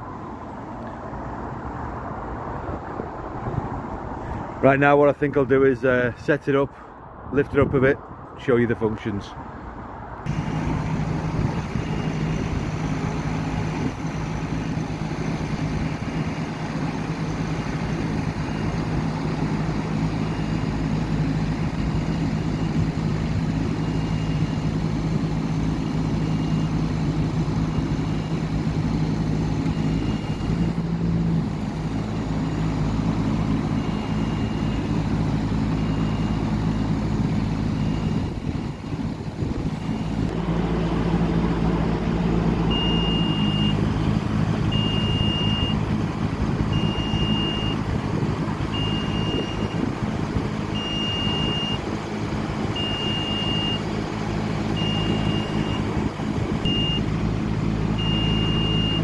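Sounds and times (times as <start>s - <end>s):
diesel engine running: 0.0s - 59.0s
short high beeps: 42.7s - 43.8s, 44.8s - 45.8s, 58.0s - 59.0s.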